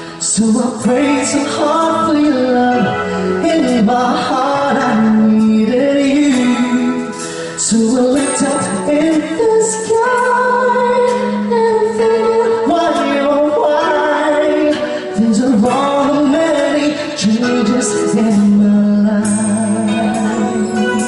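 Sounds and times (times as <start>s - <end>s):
band playing: 0.0s - 21.0s
woman singing: 7.7s - 21.0s.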